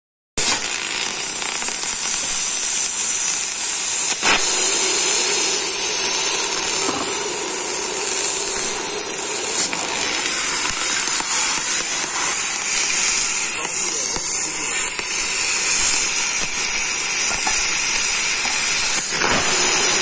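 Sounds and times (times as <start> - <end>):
cutting torch hissing: 0.4 - 20.0.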